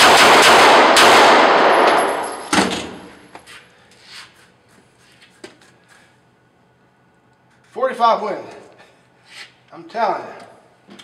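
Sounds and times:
pistol shots echoing indoors: 0:00.0 - 0:03.2.

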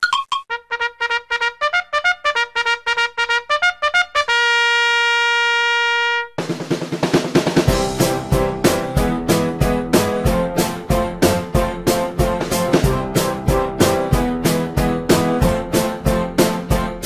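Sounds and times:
brass melody: 0:00.5 - 0:06.8, 0:07.5 - 0:17.0
band with drums: 0:06.4 - 0:16.6.

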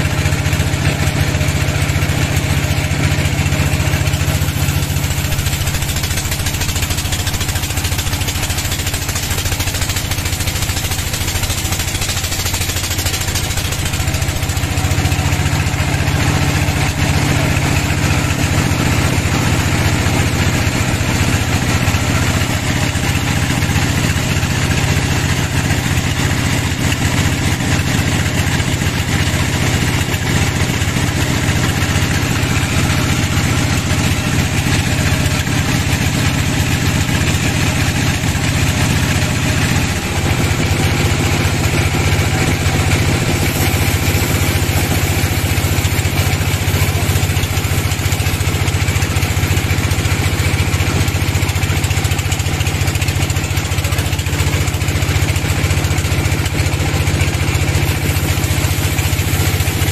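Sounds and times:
low machine drone: 0:00.0 - 0:11.4, 0:28.5 - 0:51.2
band saw ripping through log: 0:40.8 - 0:48.3, 0:57.7 - 0:59.9.

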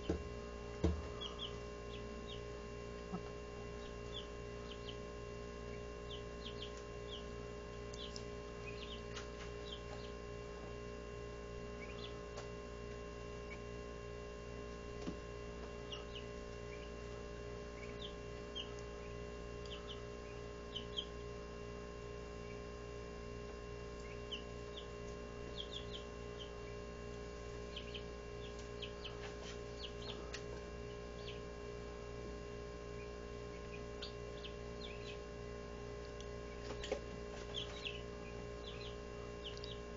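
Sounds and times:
chicks peeping: 0:00.0 - 0:10.9, 0:11.6 - 0:12.5, 0:13.3 - 0:13.8, 0:15.0 - 0:21.5, 0:22.2 - 0:23.0, 0:23.8 - 0:39.9
steady hum: 0:00.0 - 0:39.9.

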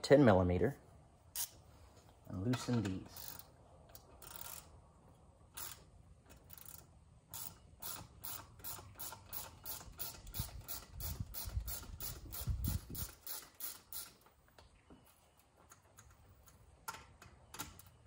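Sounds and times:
hand ratchet clicking: 0:03.2 - 0:04.7, 0:05.6 - 0:14.2.

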